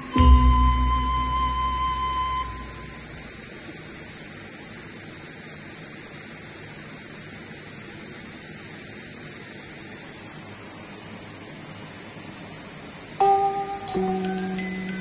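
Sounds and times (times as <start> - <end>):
held musical note: 0.0 - 3.2, 13.2 - 15.0
outdoor ambience hiss: 0.0 - 15.0.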